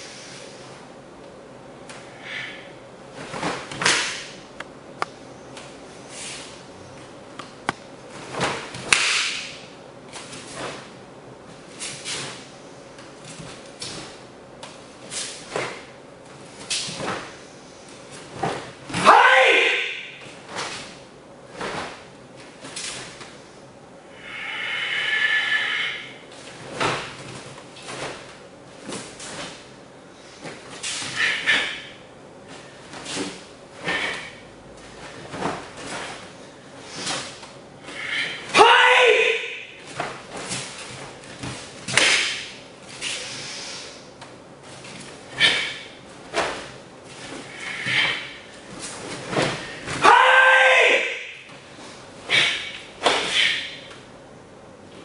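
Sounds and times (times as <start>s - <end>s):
cloth snapping and swishing: 3.2s - 4.3s, 7.7s - 10.9s, 39.9s - 43.2s
uniform snapping and swishing: 3.2s - 4.4s, 7.4s - 19.0s, 20.2s - 23.4s, 26.3s - 31.9s, 32.5s - 37.6s, 39.8s - 50.0s, 51.5s - 54.1s
bare feet stamping on mats: 39.9s - 42.5s.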